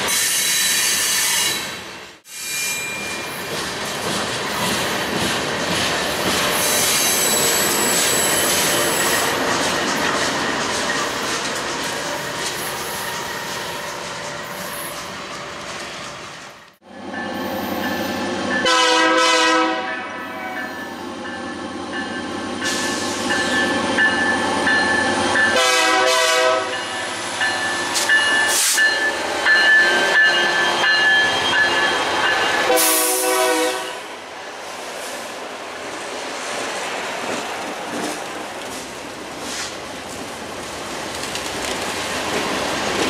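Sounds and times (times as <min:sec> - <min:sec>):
freight cars wheels on rails: 0:02.5 - 0:18.2, 0:36.0 - 0:43.0
locomotive horn blasts: 0:18.6 - 0:20.7, 0:25.5 - 0:26.8, 0:32.6 - 0:34.1.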